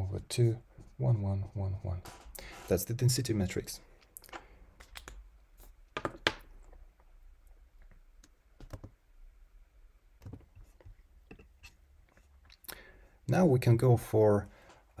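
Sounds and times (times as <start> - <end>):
computer keys clicking: 8.6 - 8.9.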